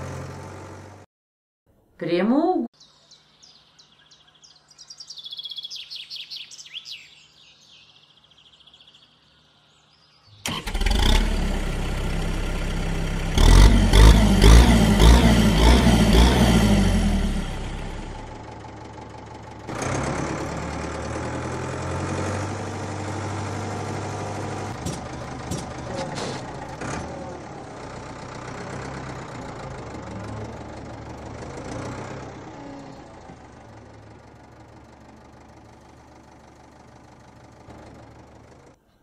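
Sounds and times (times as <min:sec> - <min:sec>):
cartoon tractor engine: 0:00.0 - 0:01.1, 0:10.4 - 0:38.8.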